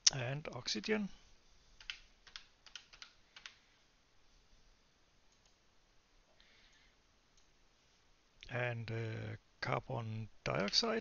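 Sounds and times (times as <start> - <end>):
typing on computer keyboard: 1.8 - 3.6.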